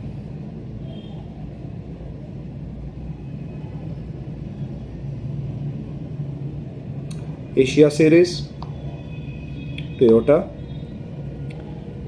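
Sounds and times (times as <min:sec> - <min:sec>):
continuous hum: 0:00.0 - 0:12.0.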